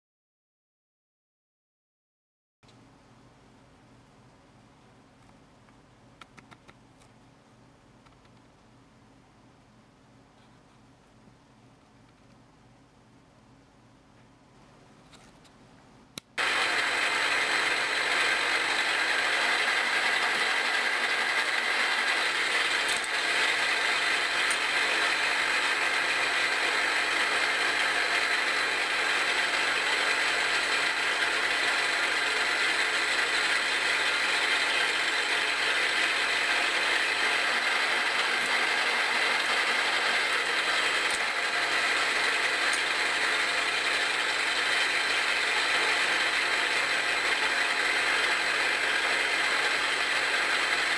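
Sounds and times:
milling machine spindle whirring: 16.4 - 50.9.

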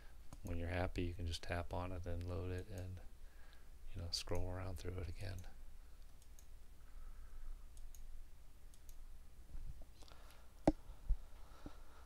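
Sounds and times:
computer mouse clicks: 5.3 - 6.5, 7.7 - 8.1, 8.7 - 9.0.

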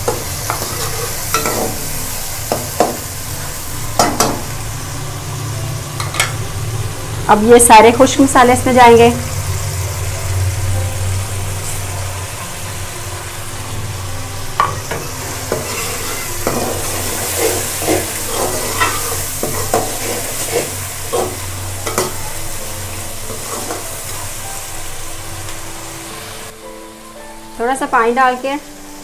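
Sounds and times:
masala sizzling in hot oil: 0.0 - 29.0
metal spoon scraping a pan: 0.1 - 1.8, 14.6 - 22.2, 23.3 - 24.1.

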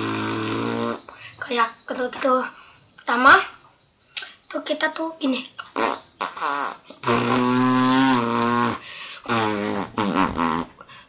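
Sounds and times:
boy imitating car engine: 0.0 - 2.5, 4.8 - 10.8.

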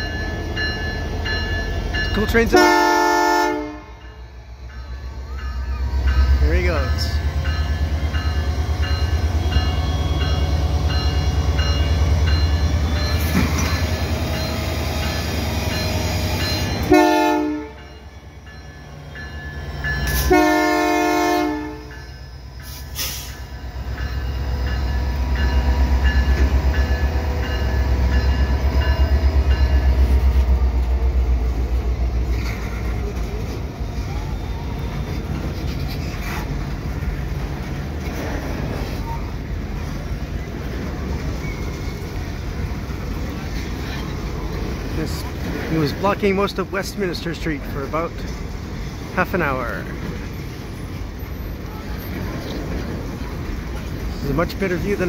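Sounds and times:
diesel locomotive engine rumble: 0.0 - 55.0
train cars clickety-clack: 0.0 - 55.0
train horn blasts: 2.5 - 4.1, 16.8 - 17.9, 20.1 - 21.9.

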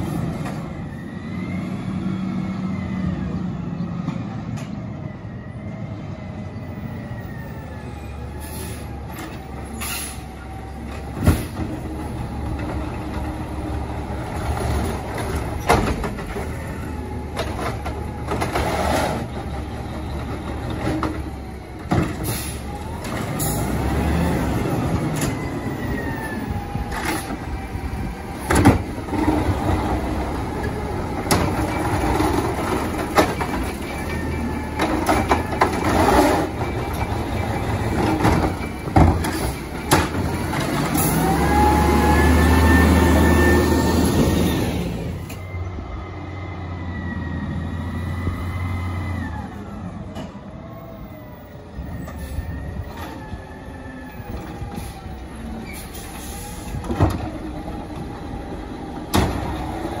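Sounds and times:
garbage truck engine revving: 11.0 - 45.3.

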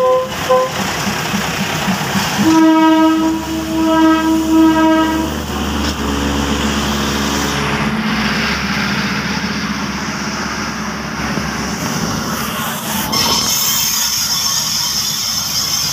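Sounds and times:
diesel trains rumbling: 0.0 - 15.9
high-pitched squeal: 2.3 - 15.9.

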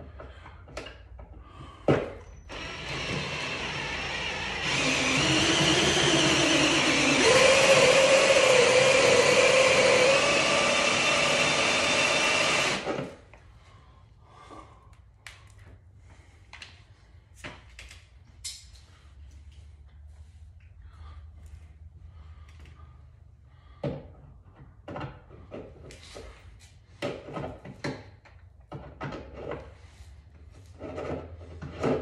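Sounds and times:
electric power tool running: 2.5 - 13.2.

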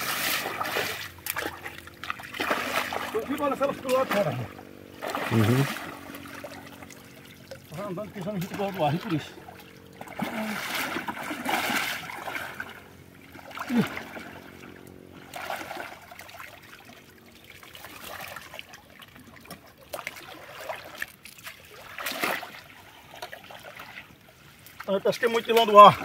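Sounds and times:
water splash: 0.0 - 24.1
pond water sloshing and trickling: 0.0 - 26.0.

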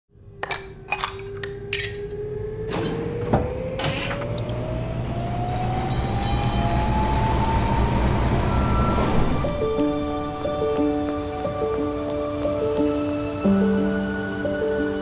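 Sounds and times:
traction motor whine rising: 1.9 - 14.7
tram controls clicking and clunking: 2.7 - 4.6.

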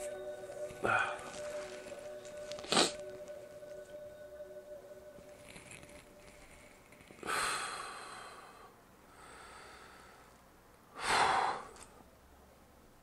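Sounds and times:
man breathing heavily through nose: 6.3 - 11.9.

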